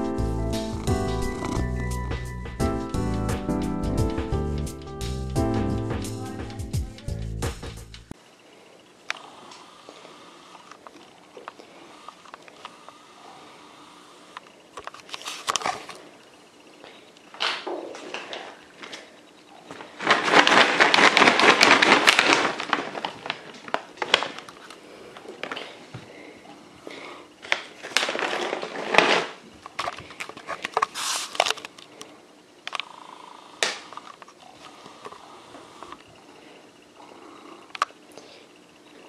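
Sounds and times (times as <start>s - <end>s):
crackling crinkling noise: 9.1s - 13.0s, 14.3s - 33.0s, 33.6s - 36.8s
scattered clicks: 29.7s - 35.2s, 37.7s - 38.0s.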